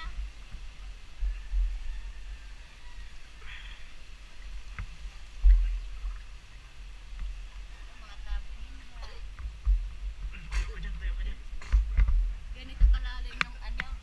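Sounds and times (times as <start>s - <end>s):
heavy low thump: 9.4s - 13.8s.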